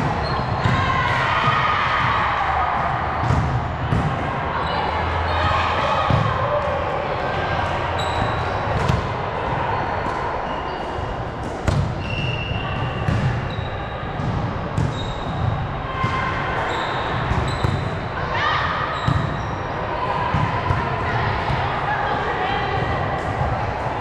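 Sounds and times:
shoes squeaking on court: 0.2 - 0.6, 8.0 - 9.0, 10.4 - 14.0, 14.8 - 15.4, 16.6 - 17.9.

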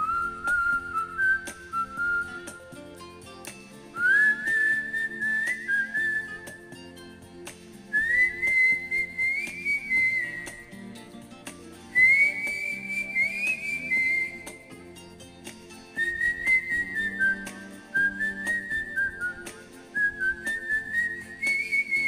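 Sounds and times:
person whistling a melody: 0.0 - 3.0, 3.9 - 7.2, 7.9 - 11.0, 11.9 - 14.8, 15.9 - 22.0
backing music: 0.0 - 22.0.

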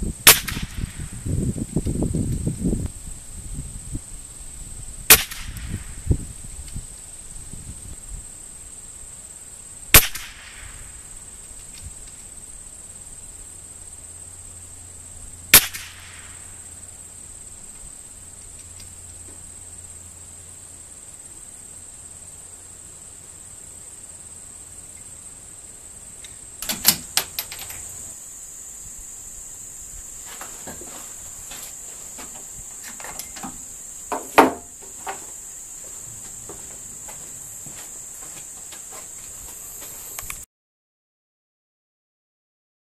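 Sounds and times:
insects droning: 0.0 - 40.5
rifle shots: 0.3 - 1.0, 5.1 - 5.7, 10.0 - 10.7, 15.6 - 16.4
sharp clicks and knocks: 26.2 - 27.9, 30.4 - 35.4.

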